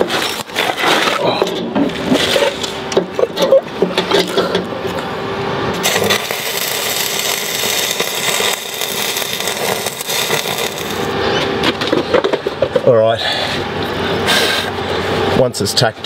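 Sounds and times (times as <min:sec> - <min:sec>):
arc welder sizzling: 0:01.9 - 0:11.7.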